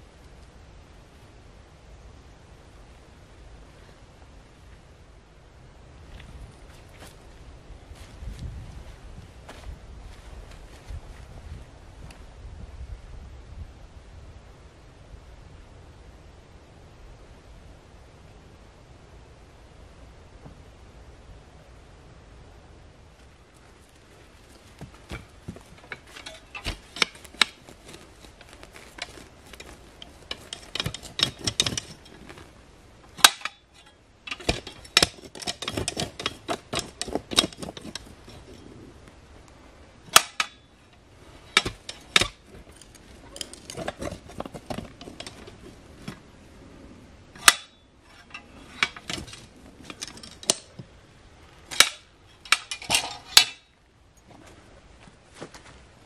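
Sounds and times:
post-hole digger crunching into soil: 23.9 - 38.9, 40.1 - 46.2, 47.4 - 50.9
metallic clinks and knocks: 24.8 - 32.5, 33.2 - 38.7, 41.4 - 45.8.

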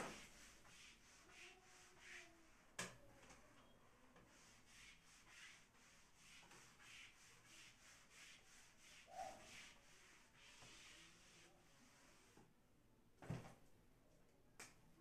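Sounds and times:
eraser rubbing whiteboard: 0.0 - 3.0, 4.2 - 12.4.

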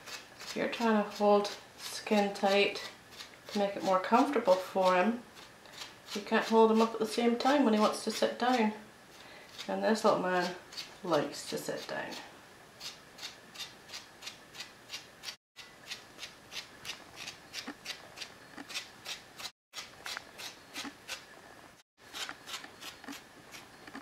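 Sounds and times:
stripping tool rasping through fur: 0.0 - 6.6, 12.8 - 21.2, 22.1 - 24.0.

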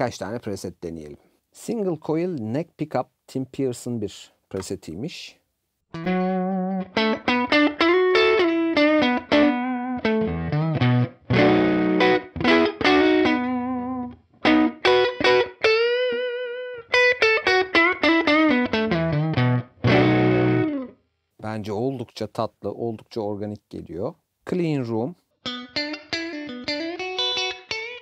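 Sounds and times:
electric guitar lick: 6.0 - 21.0, 25.4 - 28.0.

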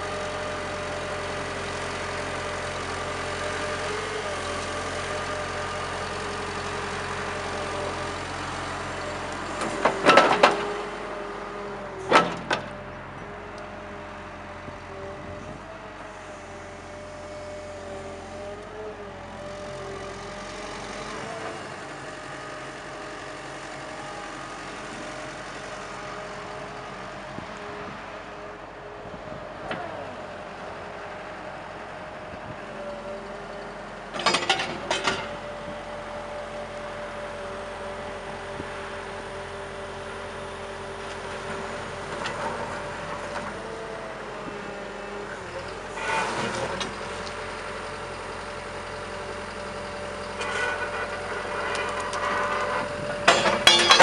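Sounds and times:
excavator engine and hydraulics whine: 0.0 - 54.0
metal clanks: 50.4 - 54.0.

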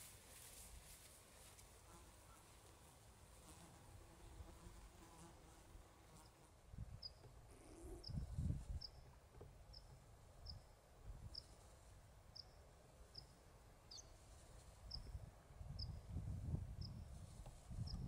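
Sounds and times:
wind rumbling on microphone: 6.7 - 9.0, 14.9 - 18.0.

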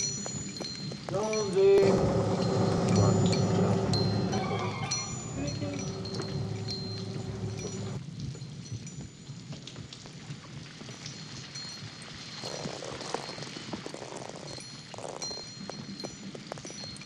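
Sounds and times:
rain patter: 0.0 - 17.0
low rumble: 1.5 - 8.0.

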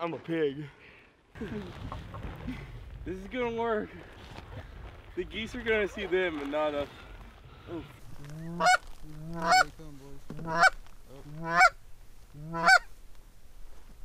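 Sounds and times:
goose call honks: 8.3 - 11.8, 12.4 - 12.9.

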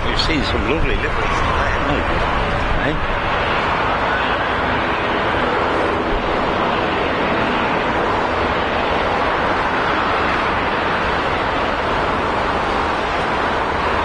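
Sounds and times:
jet engines rushing: 0.0 - 14.0.

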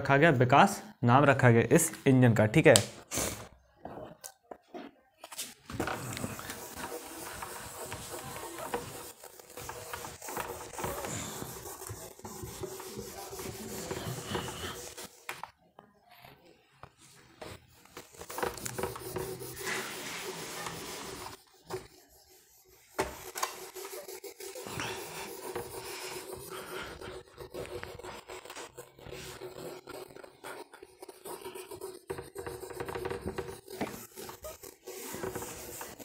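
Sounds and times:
duster rubbing on whiteboard: 5.7 - 15.5, 17.0 - 36.0.

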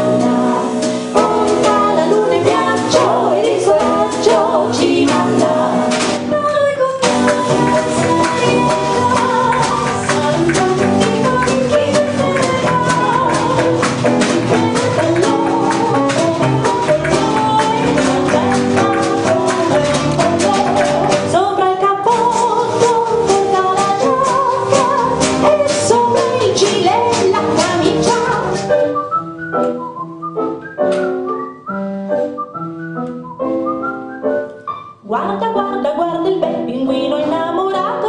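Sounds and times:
female vocal group singing: 0.0 - 28.6
acoustic jazz band: 0.0 - 38.0.

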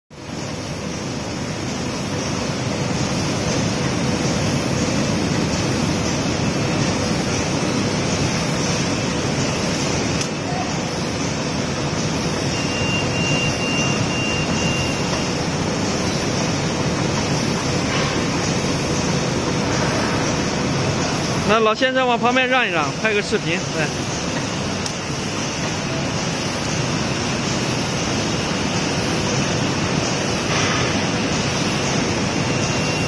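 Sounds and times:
machine rollers and motors running: 0.1 - 33.0
thin high whine: 6.9 - 24.1.

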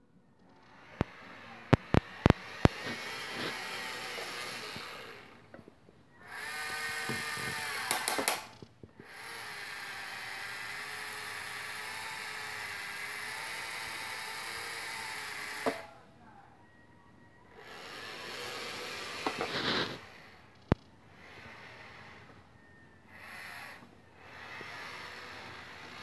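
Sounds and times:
small electric motors whirring: 0.4 - 16.1, 17.4 - 26.0
sharp clicks: 7.0 - 8.7.

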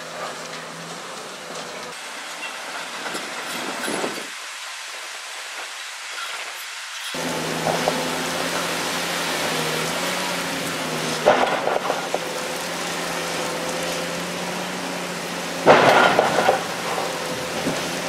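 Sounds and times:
excavator diesel engine running: 0.0 - 3.9, 7.2 - 18.0
concrete cracking and crumbling: 9.5 - 14.4, 15.6 - 18.0.

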